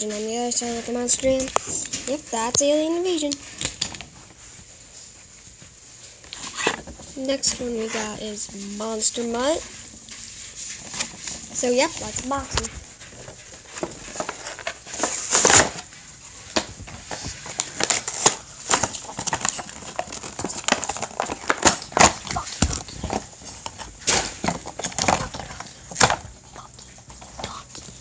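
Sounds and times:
cardboard and plastic rustling: 0:00.0 - 0:28.0
packaging clicks and snaps: 0:16.5 - 0:28.0.

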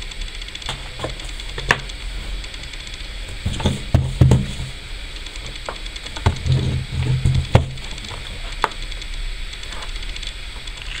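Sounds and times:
cardboard box bumps: 0:03.4 - 0:04.8.

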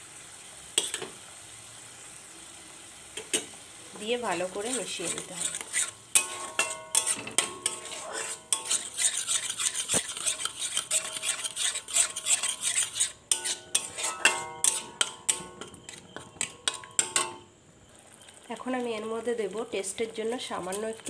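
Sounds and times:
metal spatula scraping metal pan: 0:00.8 - 0:01.1, 0:04.1 - 0:17.5.

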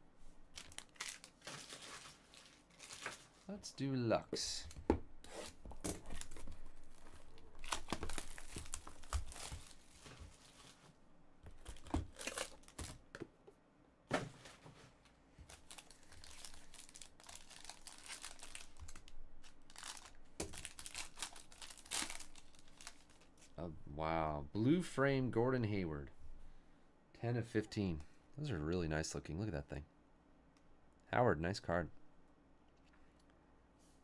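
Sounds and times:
foil wrapper crinkling and tearing: 0:00.5 - 0:03.5, 0:05.9 - 0:10.6, 0:11.6 - 0:13.0, 0:15.4 - 0:23.6.

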